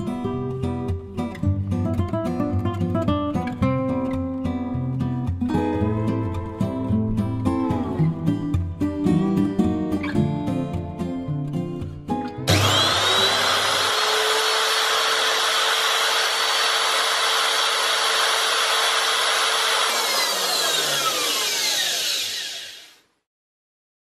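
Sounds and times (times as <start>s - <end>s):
power tool motor whine: 12.5s - 23.1s.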